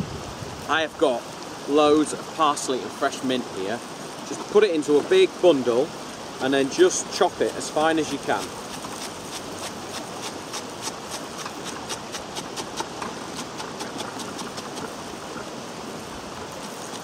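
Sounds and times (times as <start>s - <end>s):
background hiss: 0.0s - 17.0s
knife chopping on wooden board: 7.5s - 14.9s.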